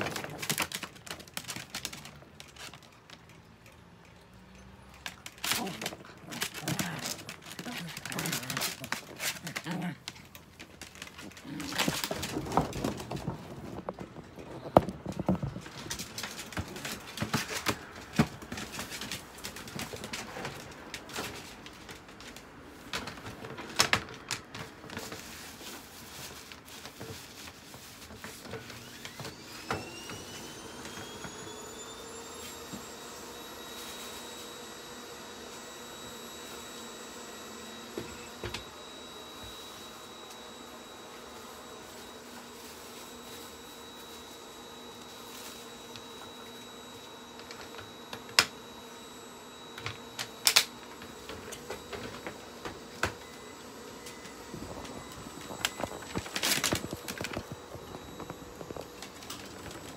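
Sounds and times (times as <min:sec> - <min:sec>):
small electric motor whining: 0:28.6 - 0:59.9.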